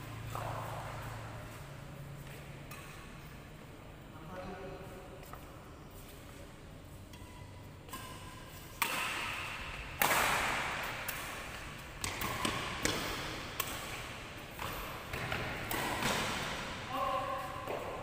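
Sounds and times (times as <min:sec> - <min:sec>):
rackets hitting shuttlecock: 0:00.0 - 0:03.4, 0:07.1 - 0:18.0.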